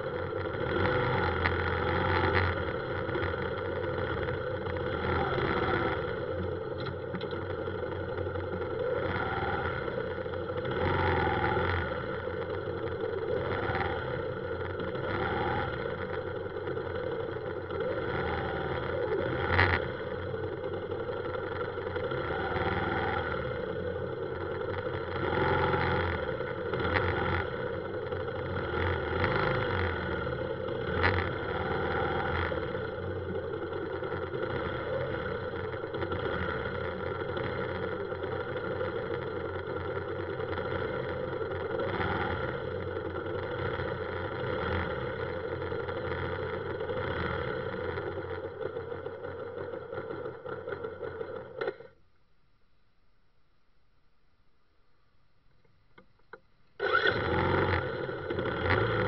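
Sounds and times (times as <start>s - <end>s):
motorbike engines idling: 0.0s - 52.0s
engine knocks: 5.6s - 8.8s.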